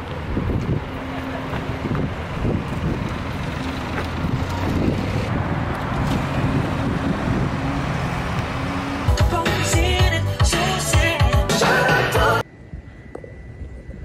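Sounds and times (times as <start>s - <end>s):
car engine: 0.0s - 10.4s
road noise: 0.0s - 12.5s.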